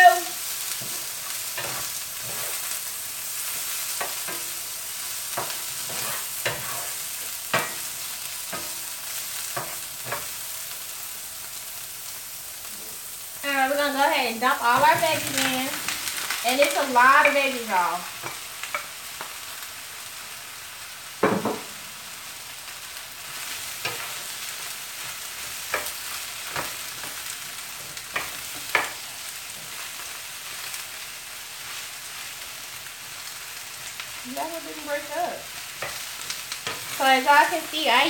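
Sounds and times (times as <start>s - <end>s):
vegetables sizzling in skillet: 0.0s - 38.0s
wooden spoon knocking pan: 21.2s - 21.7s.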